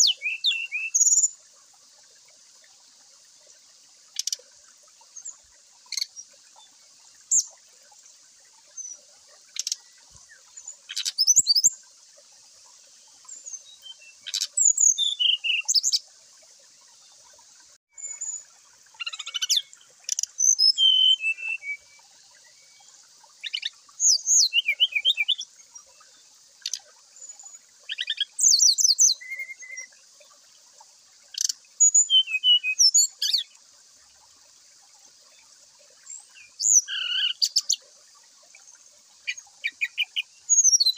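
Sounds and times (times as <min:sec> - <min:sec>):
bird chirping and warbling: 0:00.0 - 0:01.3, 0:08.8 - 0:11.8, 0:13.3 - 0:16.0, 0:18.0 - 0:26.0, 0:26.6 - 0:29.9, 0:31.3 - 0:33.5, 0:36.0 - 0:37.8, 0:39.2 - 0:40.9.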